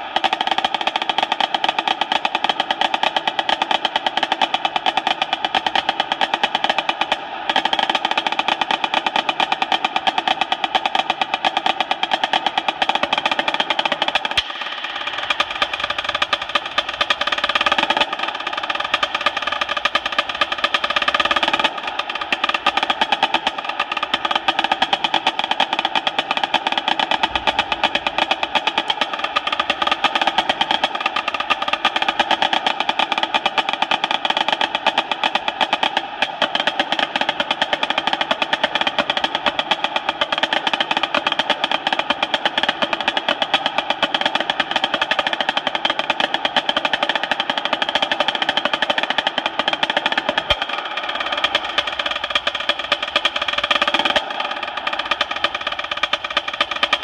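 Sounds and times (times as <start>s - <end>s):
marching snare drum rolls: 0.0s - 57.0s.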